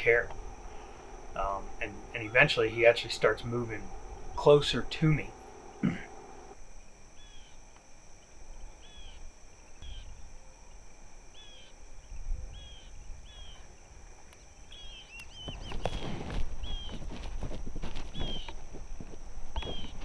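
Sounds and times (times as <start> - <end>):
high-pitched insect drone: 0.0 - 20.0
rustling: 15.2 - 20.0.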